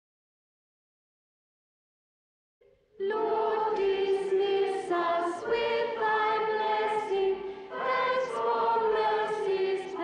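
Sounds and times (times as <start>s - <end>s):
girls' choir singing: 3.0s - 10.0s.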